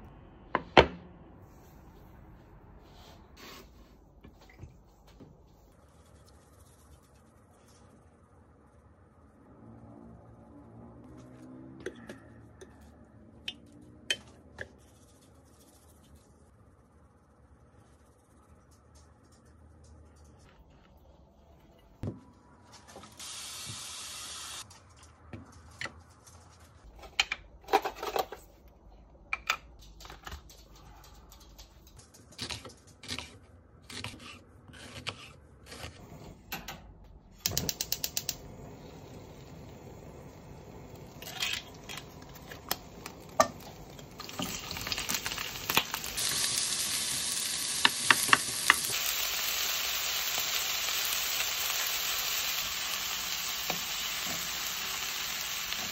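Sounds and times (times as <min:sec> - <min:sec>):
gas burner hissing: 0:23.1 - 0:24.6, 0:37.4 - 0:55.9
onions sizzling in pan: 0:23.2 - 0:24.6, 0:38.5 - 0:55.9.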